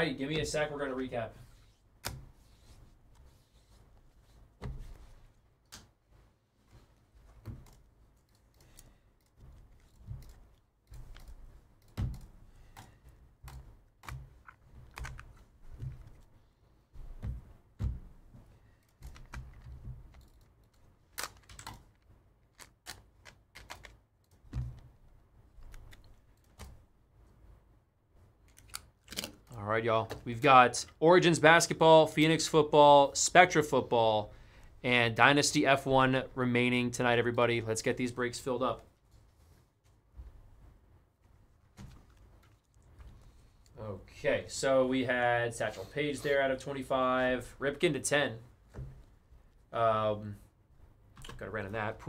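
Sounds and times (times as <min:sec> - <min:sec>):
keyboard typing: 0:07.4 - 0:16.3, 0:18.8 - 0:24.8
cards in plastic holders stacked: 0:18.9 - 0:20.2, 0:20.8 - 0:25.0.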